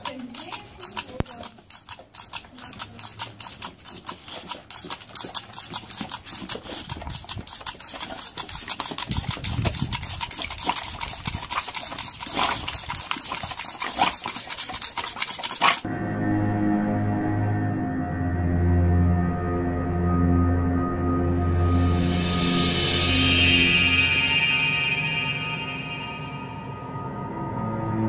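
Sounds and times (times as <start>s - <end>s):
dog chomping at water: 0.0s - 15.9s.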